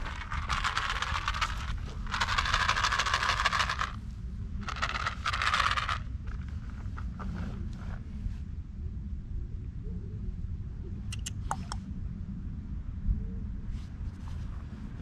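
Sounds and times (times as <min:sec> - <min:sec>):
close scraping and rubbing: 0:00.0 - 0:04.0, 0:04.6 - 0:08.4
steady low rumble: 0:00.0 - 0:15.0.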